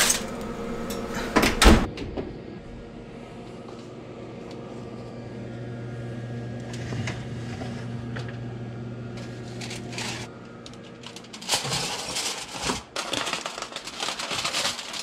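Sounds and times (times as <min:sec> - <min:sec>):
low electric oven hum: 0:00.0 - 0:15.0
metal tray scraping on rack: 0:09.2 - 0:10.3, 0:11.1 - 0:13.3
foil rustling: 0:09.2 - 0:15.0.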